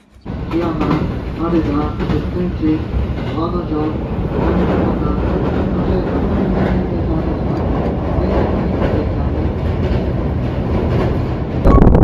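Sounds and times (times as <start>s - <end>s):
train wheels rumbling on rails: 0.0s - 11.7s.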